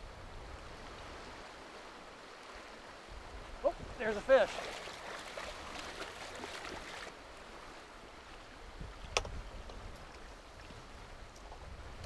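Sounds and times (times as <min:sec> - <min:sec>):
river current rushing: 0:00.4 - 0:08.9.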